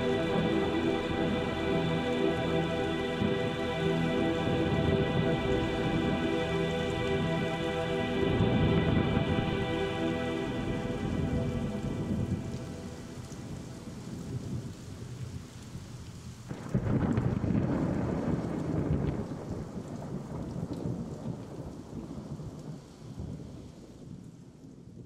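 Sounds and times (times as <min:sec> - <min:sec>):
steady rain falling: 0:00.0 - 0:25.0
thunderclap rumbling: 0:16.5 - 0:22.5.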